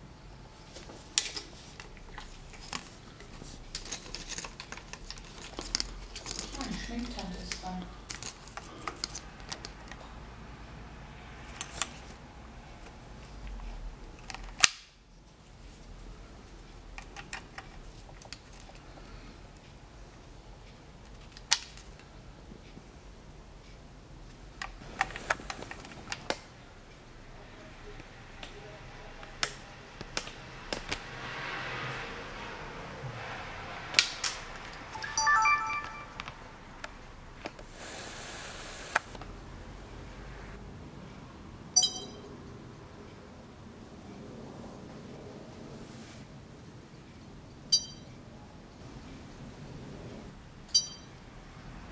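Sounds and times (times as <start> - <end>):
camcorder power-on melody: 35.0 - 36.2.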